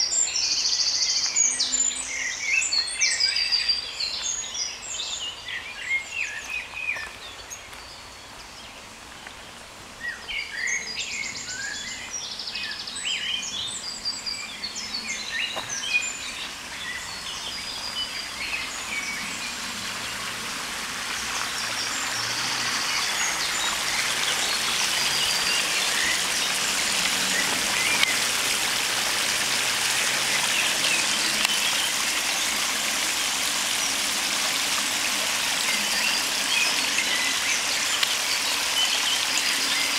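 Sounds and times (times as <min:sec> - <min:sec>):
songbirds chirping: 0:00.0 - 0:39.9
water rushing over a weir: 0:15.2 - 0:39.9.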